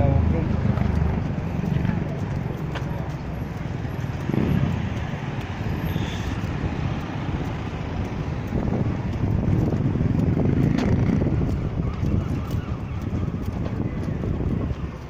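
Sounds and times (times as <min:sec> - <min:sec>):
tram rumbling past: 0:00.0 - 0:11.8
wind buffeting microphone: 0:00.0 - 0:15.0.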